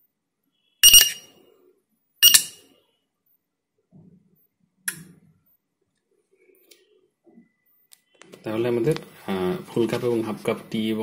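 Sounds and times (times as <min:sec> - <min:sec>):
short buzzer beeps: 0:00.6 - 0:01.4, 0:02.2 - 0:02.6.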